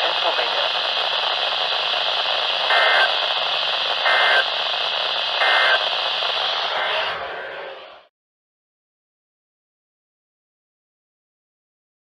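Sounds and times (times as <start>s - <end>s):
data burst tones: 0.0s - 8.1s
radio static hiss: 0.0s - 8.1s.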